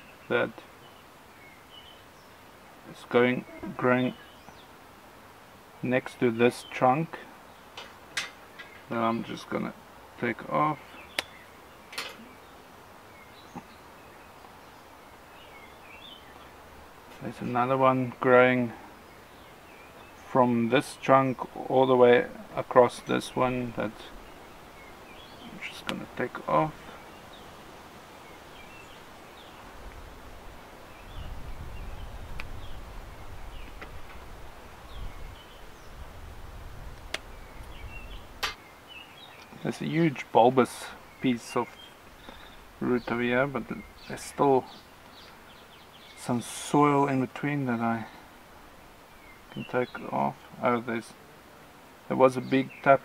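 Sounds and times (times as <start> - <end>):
faint bird chirps: 8.4 - 29.8, 37.2 - 51.2.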